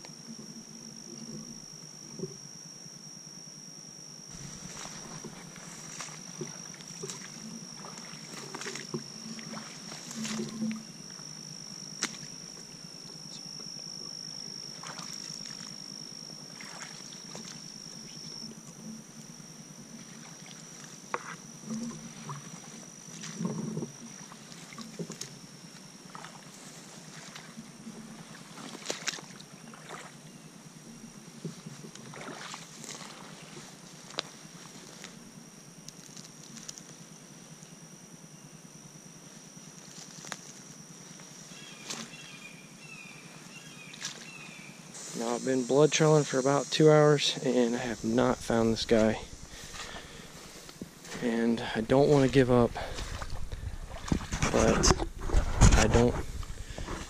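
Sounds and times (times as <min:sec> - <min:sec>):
footsteps sloshing through water: 0:04.3 - 0:10.8, 0:14.8 - 0:15.8, 0:16.5 - 0:17.6, 0:28.2 - 0:30.2, 0:32.0 - 0:34.2, 0:43.9 - 0:44.4, 0:48.3 - 0:51.4, 0:52.1 - 0:57.0
grass swishing against legs: 0:04.4 - 0:06.2.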